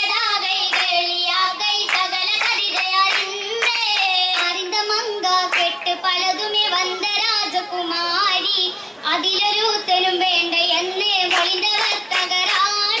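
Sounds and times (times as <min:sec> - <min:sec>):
young female voices singing: 0:00.0 - 0:13.0
sharp hand claps: 0:00.6 - 0:01.0, 0:01.8 - 0:04.6, 0:05.5 - 0:05.8, 0:11.3 - 0:13.0.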